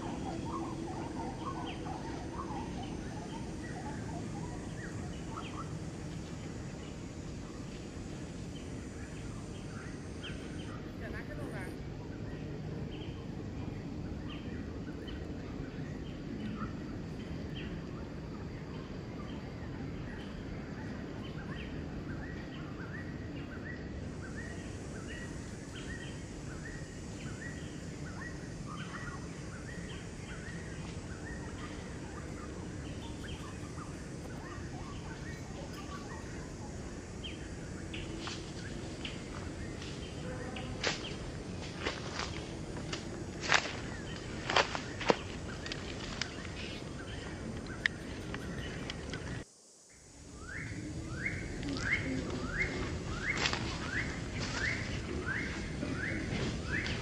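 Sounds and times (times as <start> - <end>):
bird chirping: 0.0 - 7.0, 24.2 - 41.2
steady background hiss: 0.0 - 57.0.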